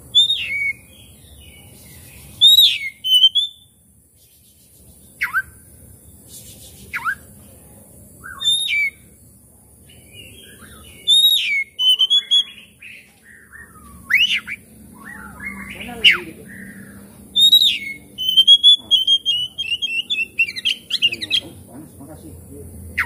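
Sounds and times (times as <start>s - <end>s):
bird singing whistled phrases: 0.1s - 1.1s, 2.4s - 3.7s, 5.2s - 5.5s, 6.9s - 7.3s, 8.2s - 9.1s, 10.1s - 21.6s.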